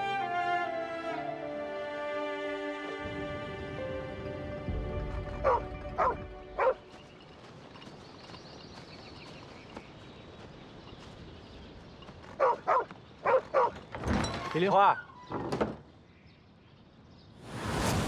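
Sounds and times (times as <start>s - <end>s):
small dog barking: 5.4s - 6.8s, 12.4s - 13.8s.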